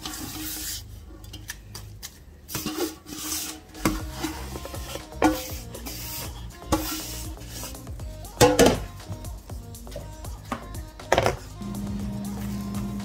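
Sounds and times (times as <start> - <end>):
wet scraping and rubbing: 0.0 - 7.9
metal bowl knocking container: 8.4 - 8.9.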